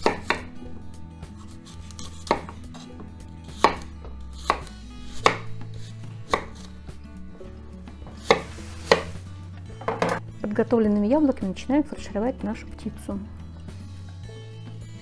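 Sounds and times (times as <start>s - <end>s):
knife knocking on cutting board: 9.8s - 10.2s.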